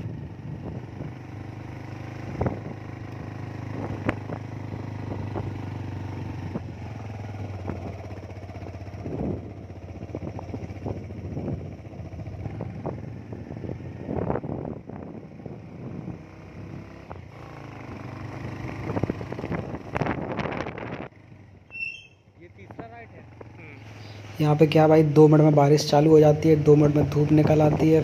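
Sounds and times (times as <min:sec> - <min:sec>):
motor scooter engine: 0:00.0 - 0:21.1.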